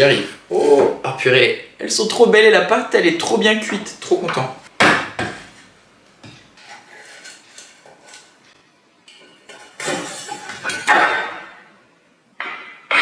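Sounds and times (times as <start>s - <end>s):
knife scraping metal tin: 6.6s - 8.4s, 9.5s - 10.9s.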